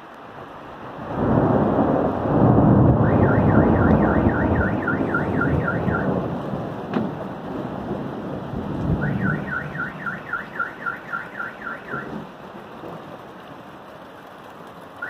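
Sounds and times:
steady rain: 0:00.0 - 0:15.0
thunder rolling: 0:01.0 - 0:13.4
car alarm warbling: 0:02.8 - 0:06.2, 0:09.0 - 0:12.2.

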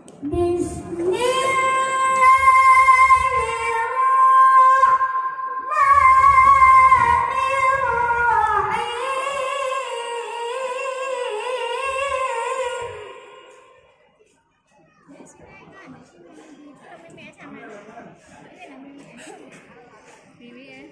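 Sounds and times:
boy chanting into microphone: 0:00.2 - 0:13.9.

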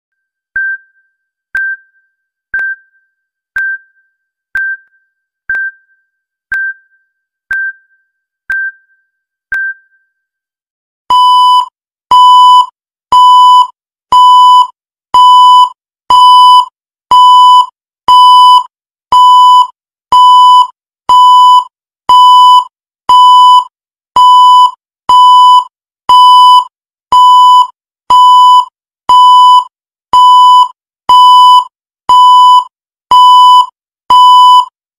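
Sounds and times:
soft timer ticks: 0:00.6 - 0:03.0, 0:03.6 - 0:04.0, 0:04.6 - 0:07.9, 0:08.5 - 0:08.9.

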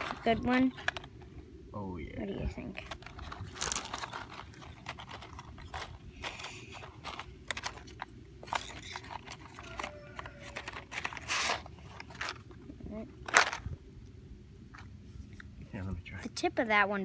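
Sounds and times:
matchsticks rattling in a box: 0:00.0 - 0:01.2, 0:02.7 - 0:12.5
steady low rumble: 0:00.0 - 0:08.5, 0:11.7 - 0:17.0.

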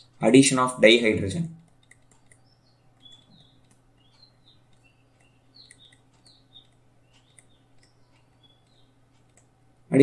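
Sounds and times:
small birds chirping: 0:00.0 - 0:10.0
stylus tapping on a tablet: 0:01.6 - 0:09.6.

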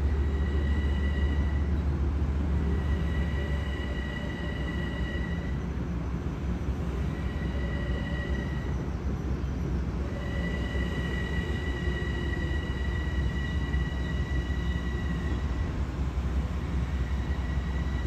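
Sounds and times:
high steady squeal: 0:00.0 - 0:18.0
train rumble: 0:00.0 - 0:18.0.

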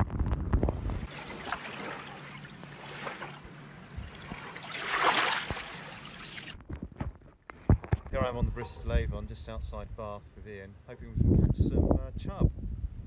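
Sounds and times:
muffled underwater rush: 0:00.6 - 0:06.6.

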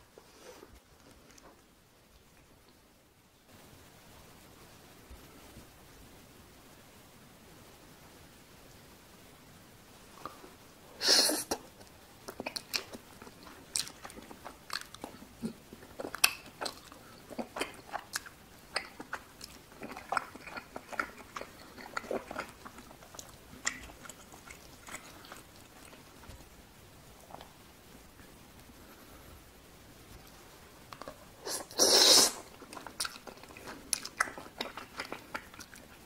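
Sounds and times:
loud mouth sound: 0:11.0 - 0:11.6, 0:31.4 - 0:32.5
wet chewing clicks and smacks: 0:11.8 - 0:26.4, 0:32.4 - 0:36.0.

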